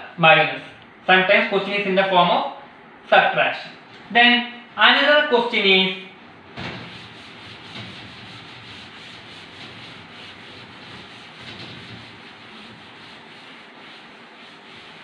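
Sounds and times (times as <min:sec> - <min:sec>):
duster wiping a blackboard: 0:05.6 - 0:15.0.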